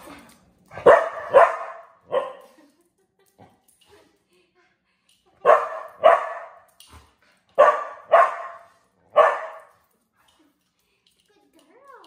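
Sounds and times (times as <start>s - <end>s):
dog barking: 0.8s - 2.5s, 5.4s - 6.6s, 7.6s - 9.7s.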